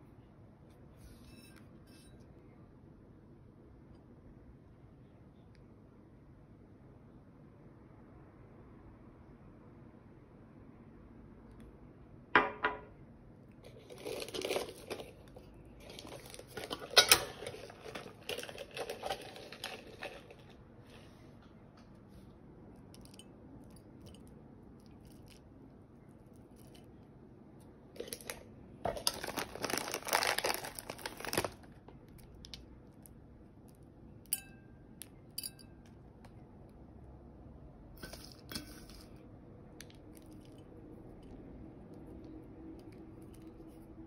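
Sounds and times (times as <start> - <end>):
small pieces clinking on plate: 13.7 - 20.5.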